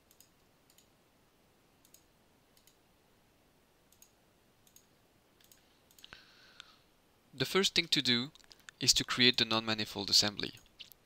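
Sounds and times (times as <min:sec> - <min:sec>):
computer mouse clicking: 0:00.0 - 0:00.9, 0:01.8 - 0:02.8, 0:03.9 - 0:06.2.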